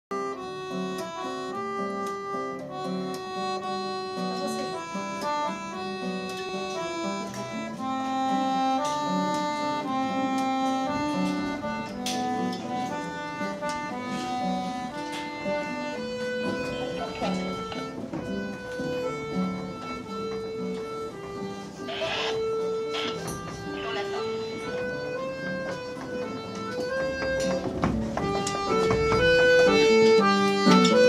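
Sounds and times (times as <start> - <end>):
accordion: 0.1 - 31.0
acoustic guitar strumming: 0.2 - 31.0.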